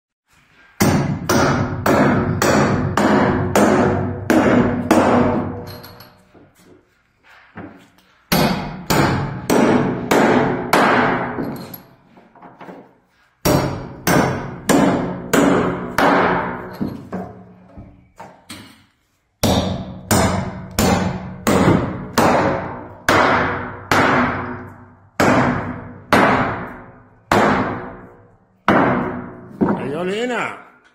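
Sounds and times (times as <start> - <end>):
hammer driving nails into wood: 8.3 - 11.6, 13.4 - 17.3, 19.4 - 28.0.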